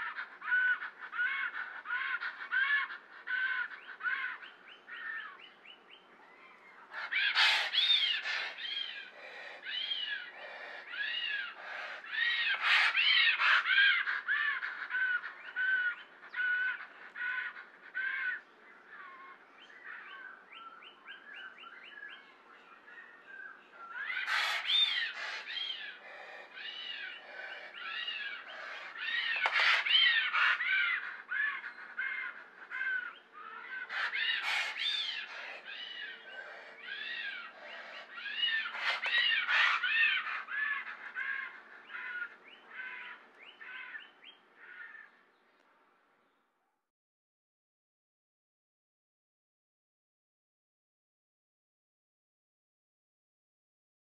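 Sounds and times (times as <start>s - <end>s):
squawking bird-like calls: 0.0s - 5.4s, 6.4s - 20.4s, 23.7s - 45.2s.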